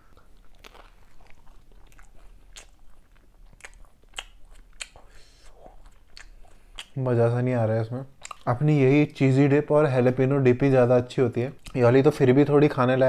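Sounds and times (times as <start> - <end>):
man chewing bread: 0.0 - 7.0, 8.1 - 8.5.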